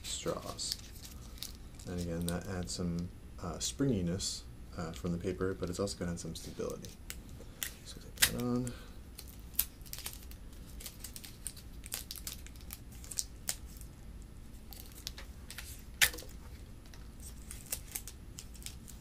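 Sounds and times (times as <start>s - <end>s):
paper crinkling: 0.0s - 2.7s, 6.5s - 13.9s, 14.6s - 19.0s.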